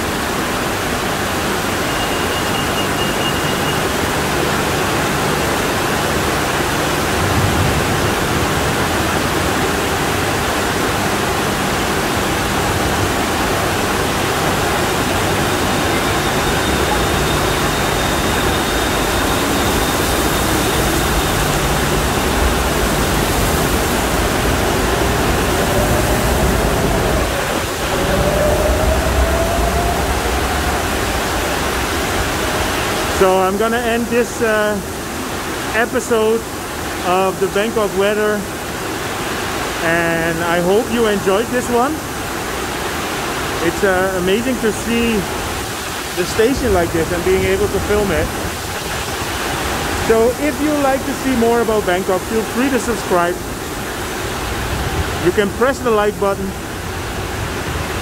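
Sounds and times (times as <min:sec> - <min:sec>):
rainwater pouring down: 0:00.0 - 0:58.0
torrential rain: 0:00.0 - 0:58.0
train motor whine: 0:14.0 - 0:33.1.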